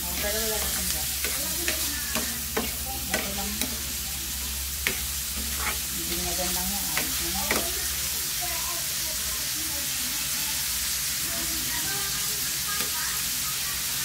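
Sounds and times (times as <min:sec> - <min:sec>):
spatula scraping and knocking pan: 0:00.0 - 0:07.9
meat sizzling in oil: 0:00.0 - 0:14.0.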